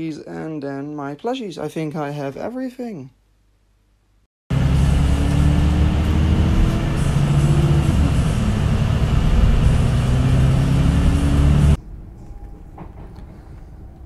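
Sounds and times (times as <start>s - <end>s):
bus engine accelerating: 4.5s - 11.8s.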